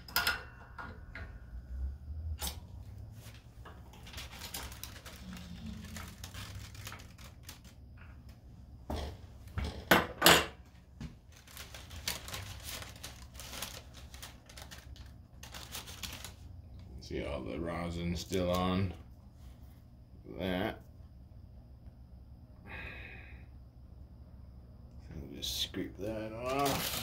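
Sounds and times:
parchment paper rustling and crackling: 0:02.8 - 0:08.4, 0:11.0 - 0:16.8, 0:26.2 - 0:27.0.

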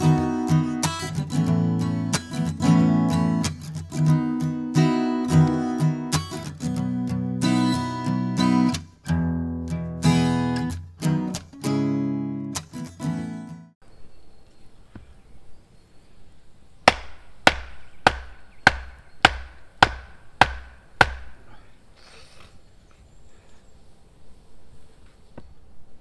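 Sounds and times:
acoustic guitar strumming: 0:00.0 - 0:13.7
log knocking on wooden pole: 0:16.9 - 0:21.4.

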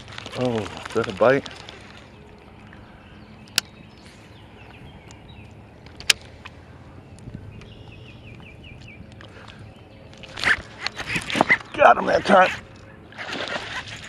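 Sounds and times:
bird chirping: 0:01.7 - 0:13.1
wind buffeting: 0:02.0 - 0:12.7.

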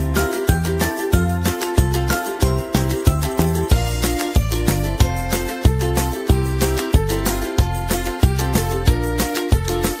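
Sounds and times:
upbeat instrumental music: 0:00.0 - 0:10.0.

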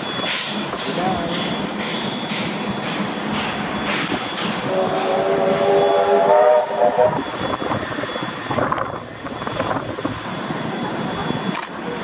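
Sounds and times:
locomotive working along track: 0:00.0 - 0:12.0
steam locomotive whistle: 0:04.6 - 0:08.4.

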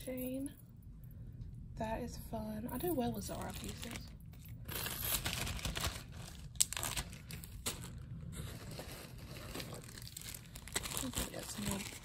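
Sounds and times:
plastic bag crinkling: 0:03.3 - 0:12.0.

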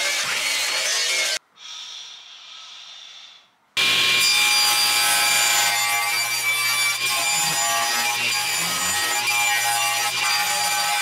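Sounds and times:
table saw cutting wood: 0:03.8 - 0:11.0.

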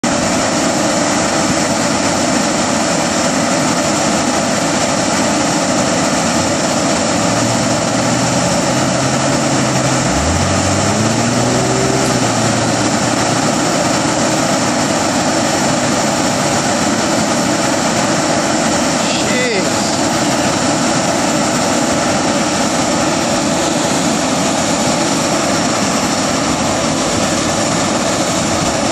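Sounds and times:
diesel engine running: 0:03.2 - 0:28.9
winch noise: 0:06.2 - 0:16.6.

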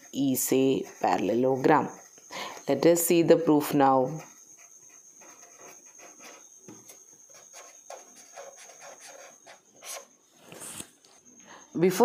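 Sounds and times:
marker scratching on paper: 0:00.0 - 0:02.2, 0:04.0 - 0:10.9.

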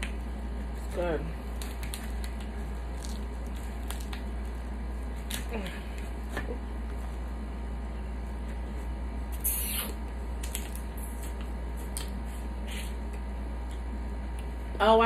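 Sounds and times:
wet sucking and smacking: 0:09.3 - 0:13.0.

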